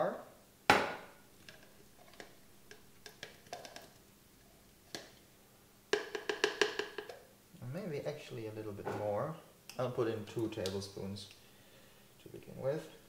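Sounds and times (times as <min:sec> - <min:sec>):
spoon knocking on plastic jar: 0:05.9 - 0:07.2.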